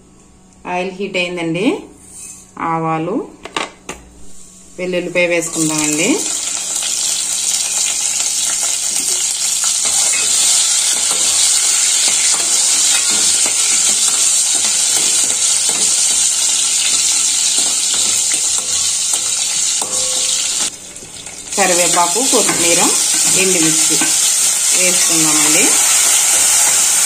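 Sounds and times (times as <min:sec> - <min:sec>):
spices sizzling in hot oil: 0:05.4 - 0:27.0
spoon stirring and scraping pot: 0:08.5 - 0:21.5.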